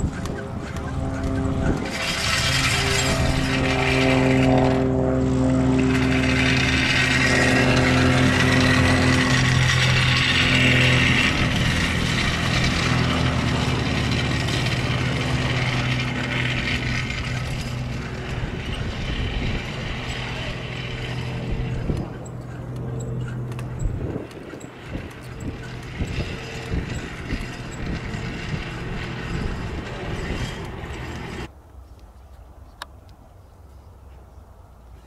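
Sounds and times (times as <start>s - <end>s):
propeller aircraft engine taxiing: 0.0s - 31.5s.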